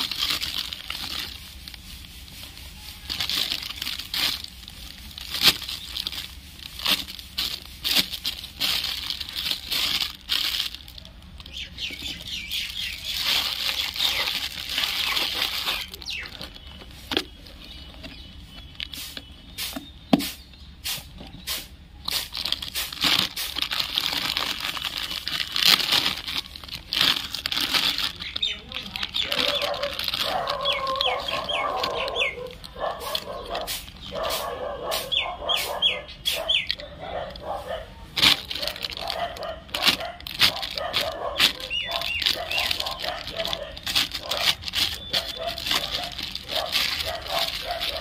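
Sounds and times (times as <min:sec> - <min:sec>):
plastic bag crinkling: 0:00.0 - 0:20.1, 0:21.3 - 0:48.0
bird chirping: 0:11.4 - 0:21.8, 0:28.1 - 0:37.8, 0:39.1 - 0:48.0.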